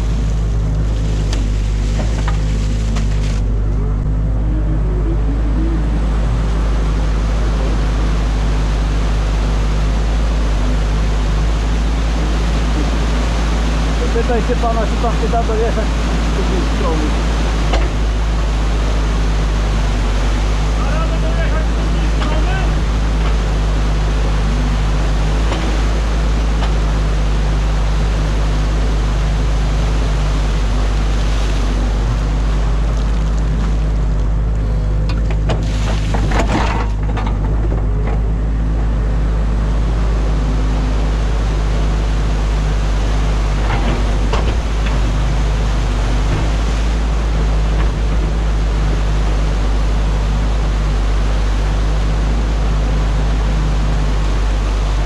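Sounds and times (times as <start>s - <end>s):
water pouring through dam: 0.0s - 3.5s, 6.6s - 34.2s, 35.4s - 37.1s
excavator diesel engine running: 0.0s - 55.0s.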